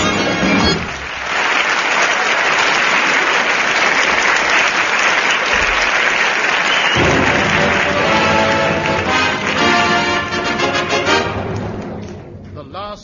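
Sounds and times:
band music: 0.0 - 1.1, 7.0 - 13.0
studio audience applauding: 0.0 - 12.2.

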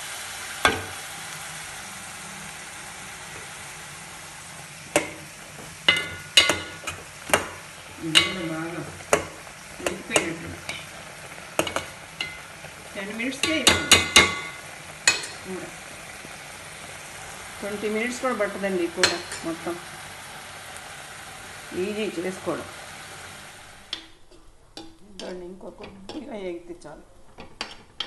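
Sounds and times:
onions sizzling in oil: 0.0 - 26.6
spoon clinking on metal pot: 11.6 - 12.5, 13.4 - 15.4.

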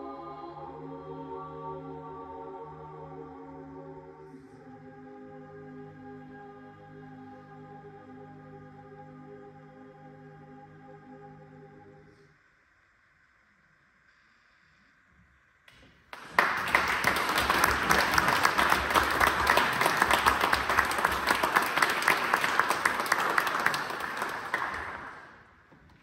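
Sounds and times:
audience applauding: 16.1 - 25.6.

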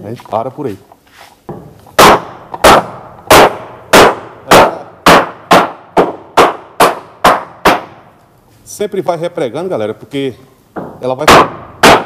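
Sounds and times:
hammer driving nails into wood: 1.5 - 8.0, 10.8 - 12.0.

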